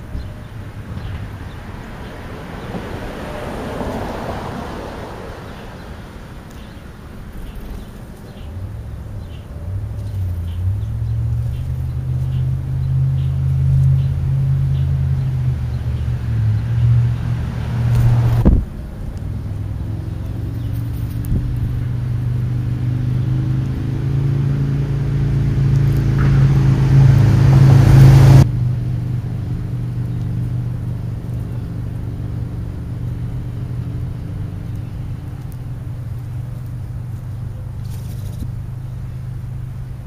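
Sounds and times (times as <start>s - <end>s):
low engine hum: 0.0s - 40.0s.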